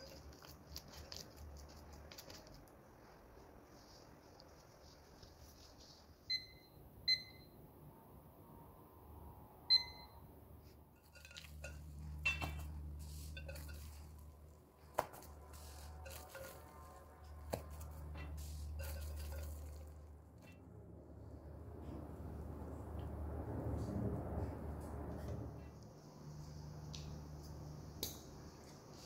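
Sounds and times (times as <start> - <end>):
dough squelching: 0.0 - 6.3, 11.0 - 20.5.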